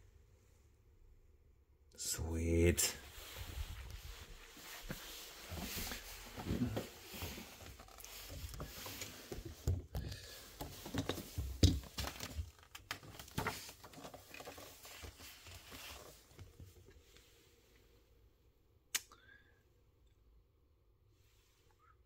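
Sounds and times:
soft rustling: 0:02.9 - 0:17.6.

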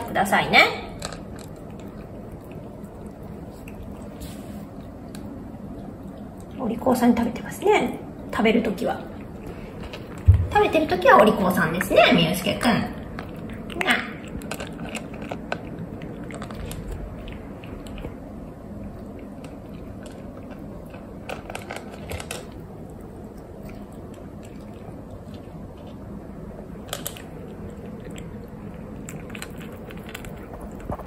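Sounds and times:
kitten chewing dry kibble: 0:00.0 - 0:07.3, 0:09.0 - 0:31.0.

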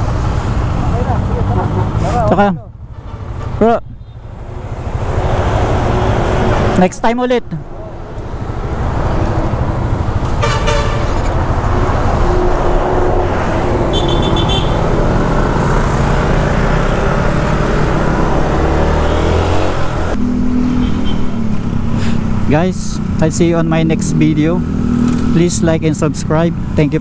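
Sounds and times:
higher horn beep: 0:10.4 - 0:11.2, 0:13.9 - 0:14.8, 0:20.6 - 0:21.4
vehicle horn tooting: 0:10.4 - 0:11.2, 0:13.9 - 0:14.8
motorcycle engine and wind: 0:11.0 - 0:25.6.

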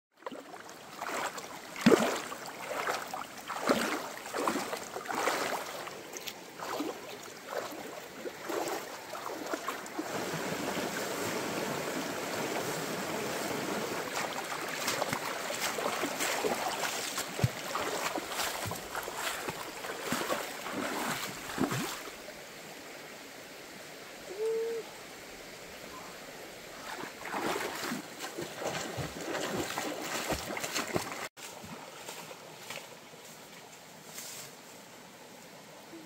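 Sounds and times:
splashing in shallow water: 0:00.2 - 0:22.3, 0:26.7 - 0:32.8
stream running over rocks: 0:00.2 - 0:34.0.

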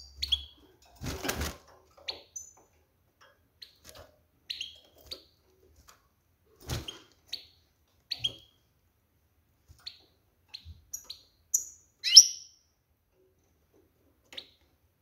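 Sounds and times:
goldfinch chirping calls: 0:10.9 - 0:12.5.

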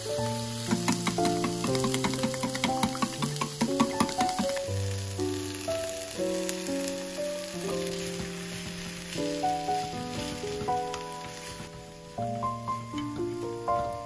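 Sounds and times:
egg sizzling in a pan: 0:00.0 - 0:11.7
soft background music: 0:00.0 - 0:14.0
chopsticks stirring: 0:00.4 - 0:04.7.

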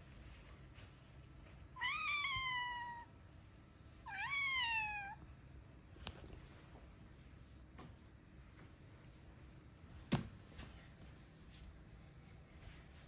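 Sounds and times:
cat meowing: 0:01.8 - 0:03.1, 0:04.0 - 0:05.2.

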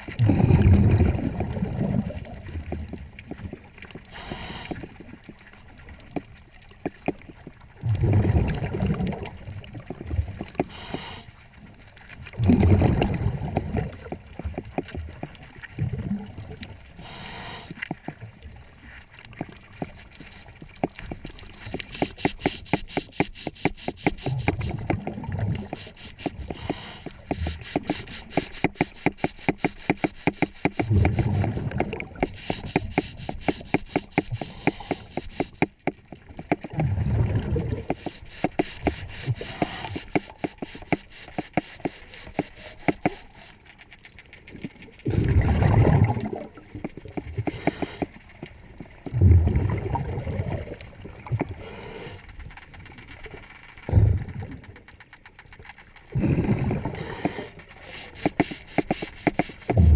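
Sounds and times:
exhaled bubbles rumbling: 0:00.0 - 0:04.1, 0:07.2 - 0:10.6, 0:11.7 - 0:17.0, 0:24.3 - 0:28.2, 0:30.8 - 0:33.0, 0:36.1 - 0:37.9, 0:44.4 - 0:54.9, 0:56.1 - 0:57.8, 0:59.6 - 0:59.9
fine rapid clicking: 0:19.8 - 0:36.7, 0:37.8 - 0:44.8, 0:57.0 - 0:59.9.

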